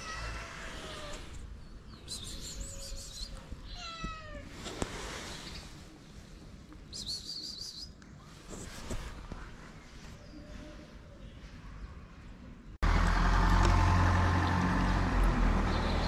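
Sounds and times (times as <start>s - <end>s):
cat meowing: 0.0s - 1.2s, 3.6s - 4.5s.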